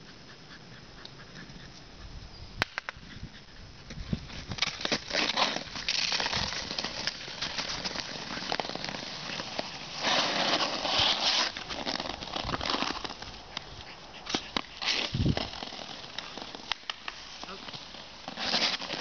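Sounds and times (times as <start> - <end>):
skates scraping across ice: 3.9 - 19.0.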